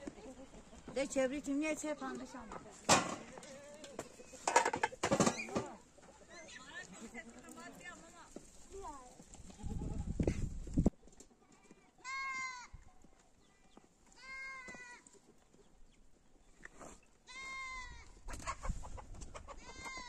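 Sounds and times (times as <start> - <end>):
goat bleating: 12.0 - 12.7, 14.2 - 15.0, 17.3 - 18.0, 19.6 - 20.0.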